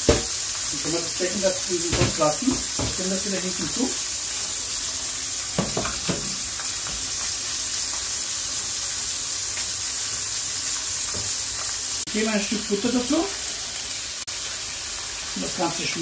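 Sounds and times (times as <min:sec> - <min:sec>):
meat sizzling in a pan: 0:00.0 - 0:16.0
cookware knocks: 0:01.9 - 0:03.0, 0:05.6 - 0:06.4.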